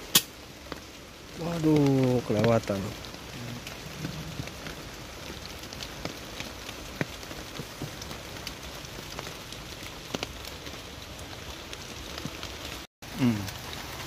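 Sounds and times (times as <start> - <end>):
heavy drizzle: 0.0 - 14.0
drops tapping on roof: 3.9 - 8.5.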